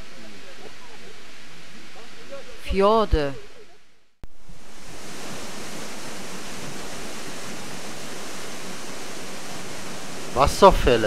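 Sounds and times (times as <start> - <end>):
waterfall rushing: 4.6 - 11.0.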